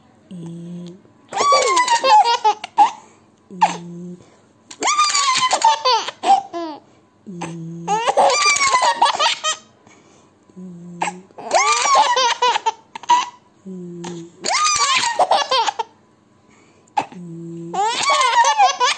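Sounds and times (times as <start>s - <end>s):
baby laughing: 1.3s - 3.0s, 4.7s - 6.8s, 7.9s - 9.7s, 11.4s - 13.4s, 14.4s - 15.9s, 17.7s - 18.9s
low hum: 7.1s - 8.1s.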